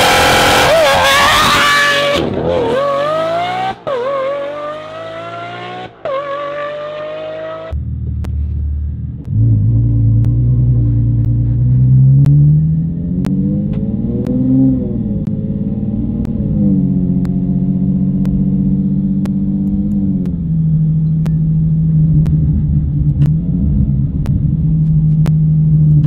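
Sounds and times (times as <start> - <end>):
car engine accelerating with upshifts: 0.0 - 26.0
deep exhaust note revving: 7.6 - 26.0.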